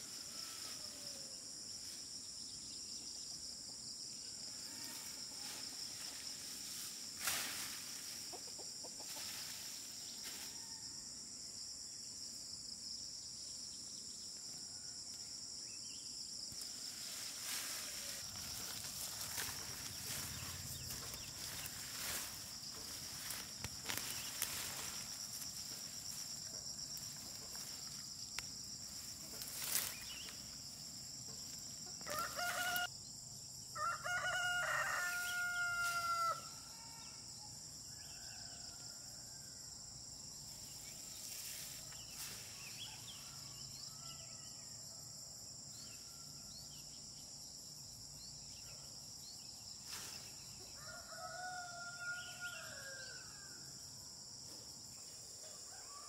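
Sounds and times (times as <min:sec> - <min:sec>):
high insect drone: 0:00.0 - 0:56.0
rooster crowing: 0:31.9 - 0:32.9, 0:33.8 - 0:37.2, 0:50.7 - 0:53.7, 0:55.5 - 0:56.0.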